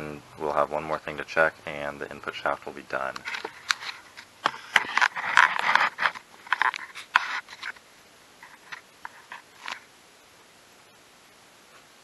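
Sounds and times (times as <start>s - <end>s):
camera handling clicks and rubs: 3.2s - 7.8s.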